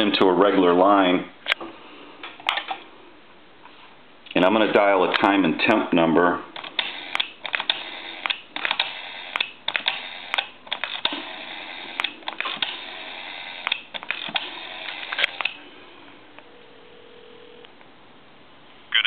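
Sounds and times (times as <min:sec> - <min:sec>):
rotary phone dial whirring and clicking: 0:06.6 - 0:15.6
faint telephone line tone: 0:16.4 - 0:17.7.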